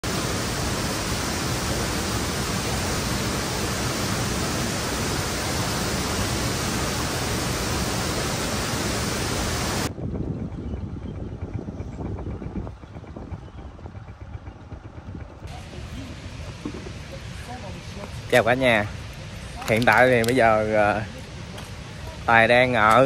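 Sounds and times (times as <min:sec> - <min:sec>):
waterfall rushing: 0:00.0 - 0:09.9, 0:15.5 - 0:23.0.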